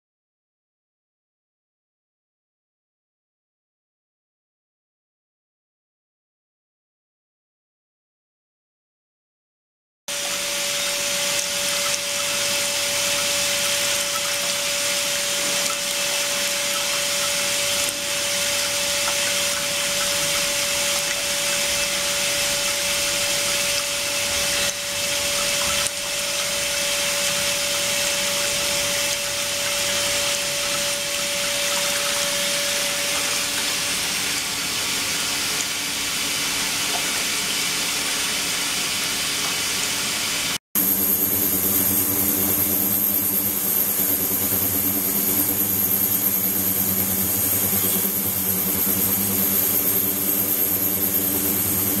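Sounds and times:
high-pitched whine: 10.1 - 34.6, 40.8 - 52.0
low machine hum: 10.1 - 35.2, 40.8 - 52.0
hiss of flowing water: 10.1 - 52.0.

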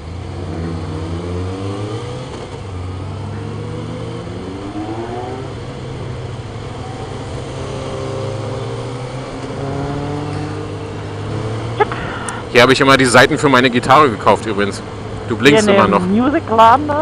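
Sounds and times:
motorcycle engine accelerating: 0.0 - 13.2
wind and road noise: 0.0 - 17.0.

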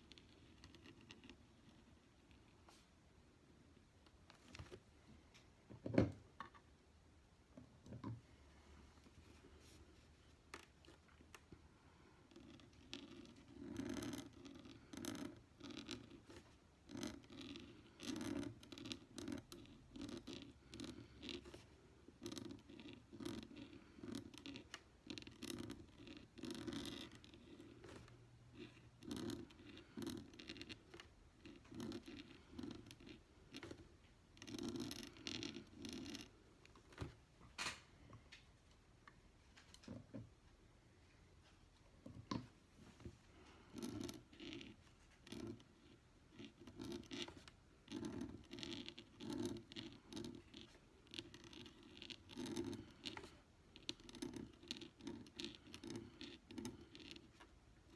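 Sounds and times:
pen nib scratching on paper: 0.0 - 2.9, 10.2 - 36.4, 43.3 - 57.9.

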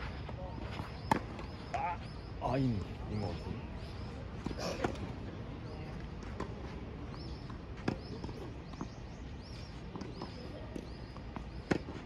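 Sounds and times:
outdoor background noise: 0.0 - 12.0
tennis balls struck and bouncing: 0.6 - 1.9, 4.3 - 5.2, 6.0 - 12.0.

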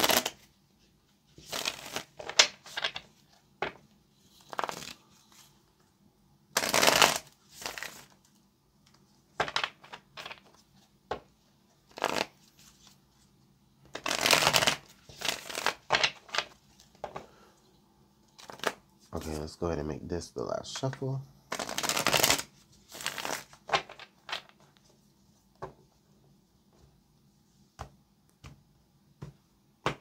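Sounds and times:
cards shuffling: 0.0 - 0.5, 1.4 - 5.4, 6.6 - 8.3, 9.4 - 10.6, 11.9 - 13.0, 13.9 - 17.2, 18.4 - 19.4, 20.8 - 24.9.

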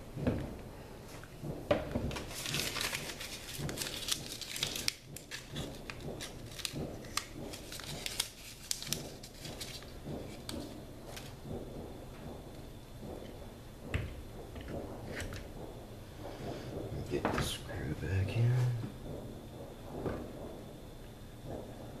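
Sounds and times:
plastic crinkling and rustling: 1.1 - 11.7.

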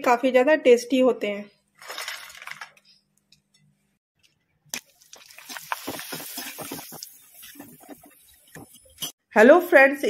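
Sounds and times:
hot oil sizzling and crackling: 4.8 - 9.2.

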